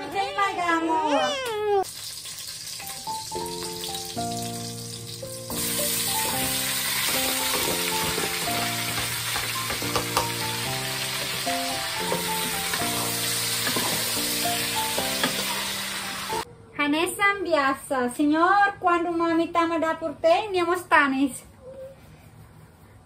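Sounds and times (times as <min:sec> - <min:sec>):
meat sizzling in hot oil: 0:01.8 - 0:16.4.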